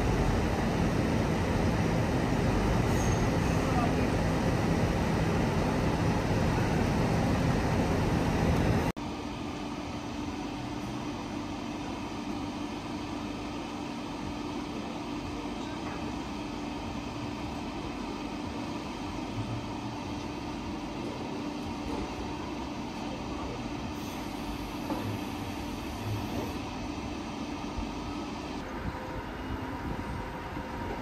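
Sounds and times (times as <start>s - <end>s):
diesel engine and hydraulics: 0.0s - 31.0s.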